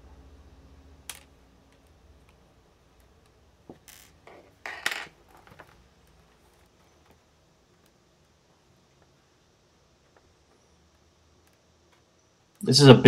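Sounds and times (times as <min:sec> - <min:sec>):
laptop clattering: 0:03.0 - 0:07.2.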